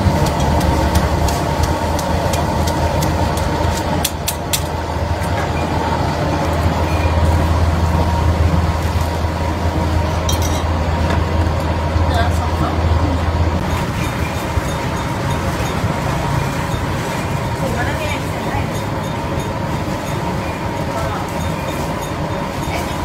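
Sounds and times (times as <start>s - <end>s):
low kitchen rumble: 0.0s - 23.0s
utensils clinking on steel pots: 10.2s - 10.8s, 13.7s - 23.0s.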